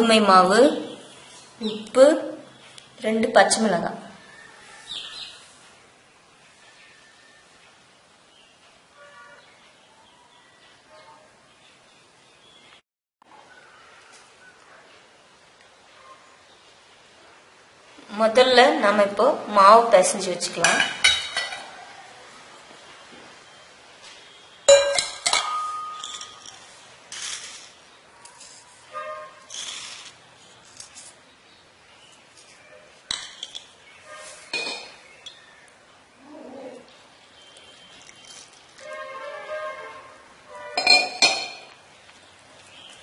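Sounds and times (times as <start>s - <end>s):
steel cup clinking on stone: 24.7s - 26.6s.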